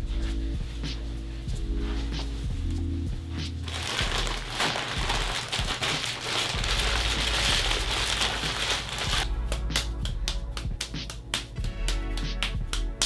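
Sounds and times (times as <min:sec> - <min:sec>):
background music: 0:00.0 - 0:13.0
plastic bag crinkling: 0:03.6 - 0:09.2.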